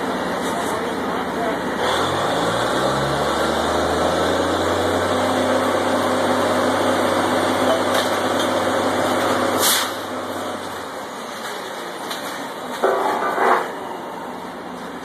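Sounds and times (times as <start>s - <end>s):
drilling rig engines running: 0.0s - 15.0s.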